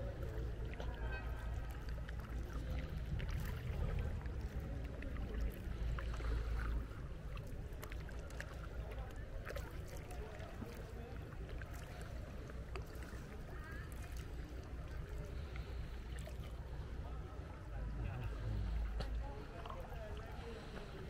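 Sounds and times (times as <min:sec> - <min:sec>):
low rumble: 0:00.0 - 0:08.2
paddle splashes and drips: 0:00.0 - 0:21.0.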